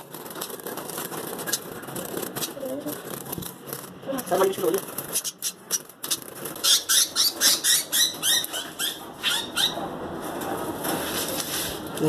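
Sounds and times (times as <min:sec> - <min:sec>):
budgerigar screeching: 0:06.6 - 0:09.8.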